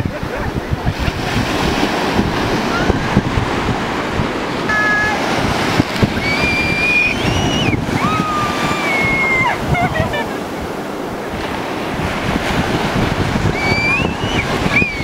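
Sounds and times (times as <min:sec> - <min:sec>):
ocean surf breaking: 0:00.0 - 0:15.0
wind buffeting microphone: 0:00.0 - 0:15.0
child squealing: 0:06.2 - 0:09.9.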